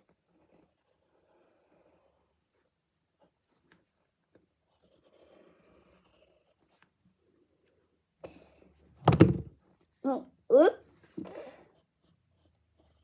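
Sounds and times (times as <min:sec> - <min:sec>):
drawing tool scratching on paper: 0:00.0 - 0:07.2, 0:11.0 - 0:13.0.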